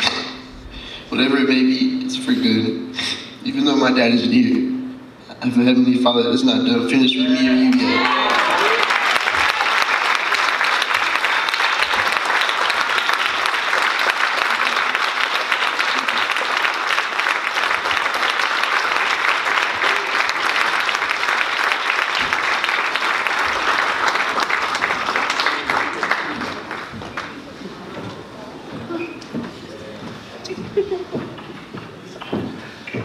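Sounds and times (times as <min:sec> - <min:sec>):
congregation applauding: 0:07.2 - 0:27.7.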